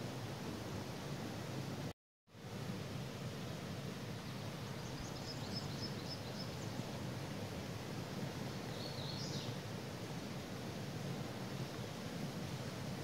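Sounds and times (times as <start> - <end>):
songbird singing: 4.2 - 7.0, 8.5 - 9.6.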